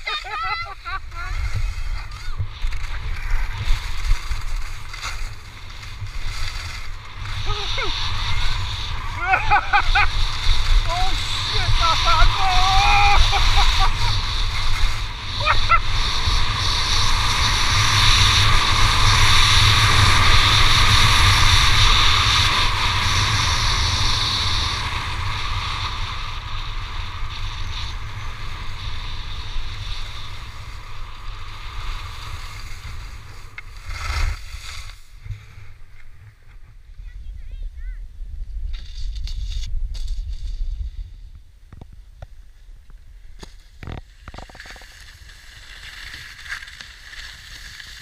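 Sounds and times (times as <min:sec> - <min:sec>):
wind buffeting microphone: 0:00.0 - 0:33.3
skis sliding over snow: 0:00.0 - 0:37.6, 0:38.5 - 0:48.0.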